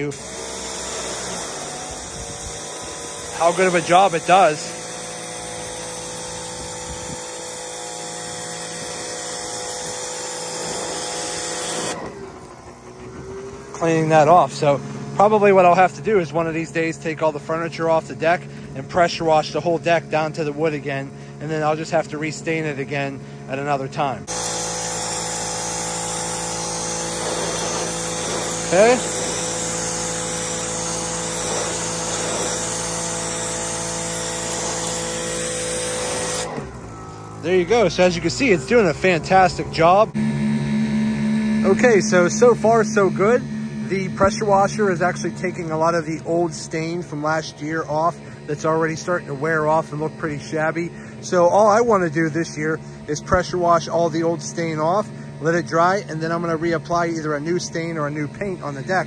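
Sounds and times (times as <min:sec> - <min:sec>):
high-pressure water jet hissing: 0:00.0 - 0:40.2
pressure washer motor whining: 0:00.0 - 0:59.0.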